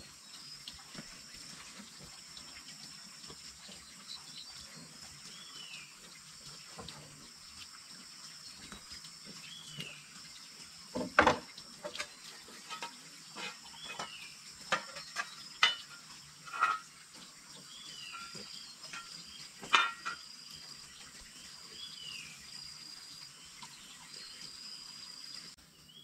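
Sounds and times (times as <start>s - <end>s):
insects droning: 0.0s - 26.0s.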